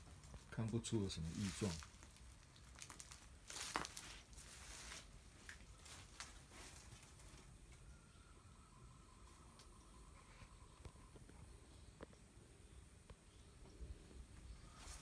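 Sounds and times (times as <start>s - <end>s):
footsteps crunching on dry leaves: 1.1s - 7.3s.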